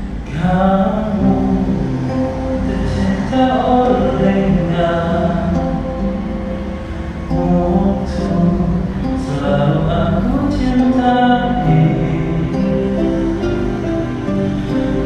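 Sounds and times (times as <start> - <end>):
karaoke backing track: 0.0 - 15.0
man singing pop song: 0.2 - 6.0, 7.3 - 12.8.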